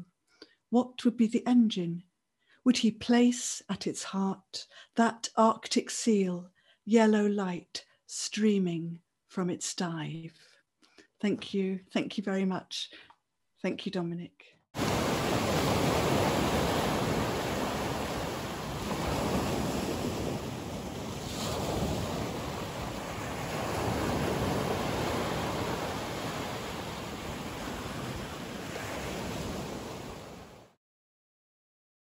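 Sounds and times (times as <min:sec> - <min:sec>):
waves washing on pebble beach: 0:14.8 - 0:30.5.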